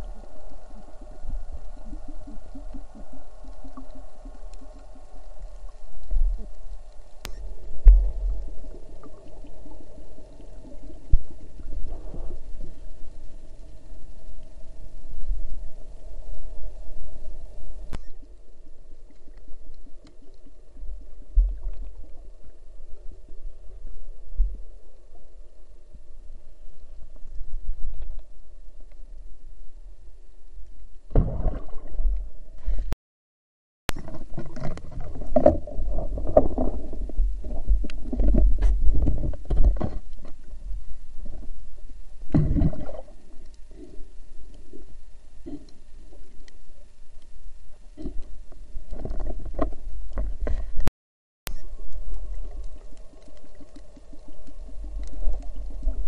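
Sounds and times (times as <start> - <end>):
faint crackling ticks: 0.0 - 11.7, 19.0 - 20.6, 43.2 - 50.9, 51.5 - 56.0
underwater rumbling of moving water: 0.0 - 33.0, 33.9 - 50.9, 51.5 - 56.0.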